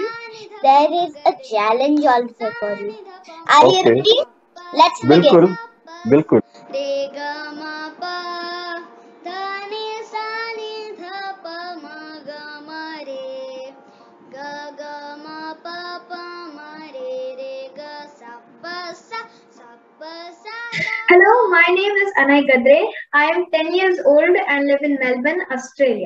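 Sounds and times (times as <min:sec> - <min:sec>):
child singing classical melody: 0:00.0 - 0:13.7, 0:14.3 - 0:20.9.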